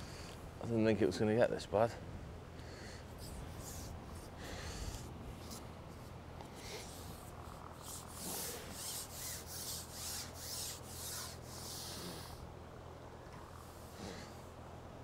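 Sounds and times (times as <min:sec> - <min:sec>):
quick rubbing strokes: 0:03.1 - 0:12.4.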